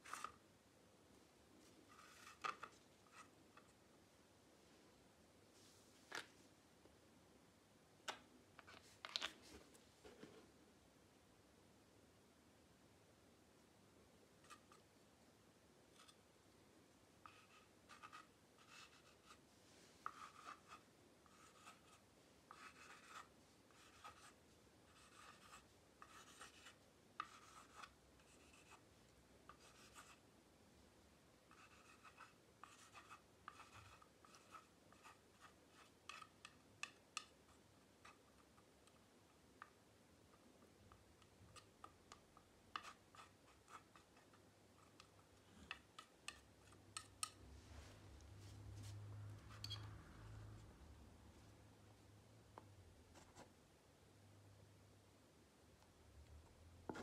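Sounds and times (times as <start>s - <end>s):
palette knife scraping paint: 0.0s - 0.4s, 1.8s - 3.8s, 14.4s - 14.9s, 15.9s - 16.2s, 17.2s - 19.4s, 20.0s - 28.9s, 29.5s - 30.2s, 31.5s - 39.0s, 39.6s - 47.4s, 48.8s - 50.0s.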